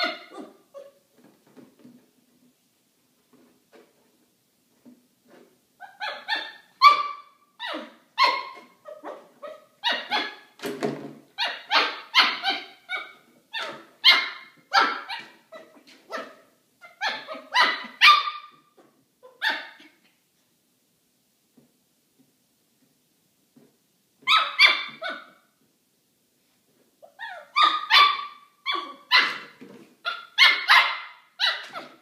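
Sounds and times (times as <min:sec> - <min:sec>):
puppy yapping: 0:00.0 - 0:01.0, 0:05.8 - 0:10.6, 0:11.4 - 0:20.1, 0:24.2 - 0:25.4, 0:27.0 - 0:32.0.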